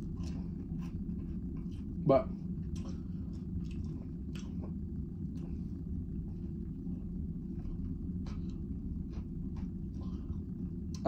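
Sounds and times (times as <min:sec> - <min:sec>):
low rumbling cabin hum: 0:00.0 - 0:11.0
person chewing: 0:02.7 - 0:05.6.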